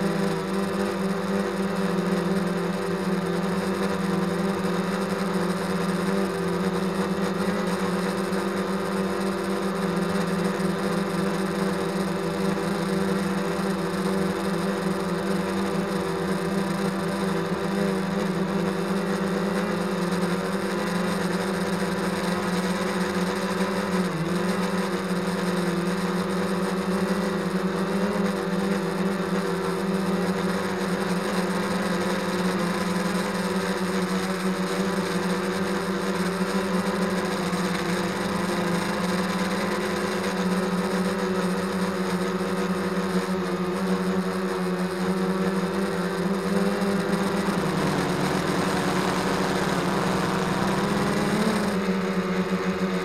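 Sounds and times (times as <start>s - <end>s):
drone whirring hum: 36.3s - 41.2s, 45.0s - 53.0s.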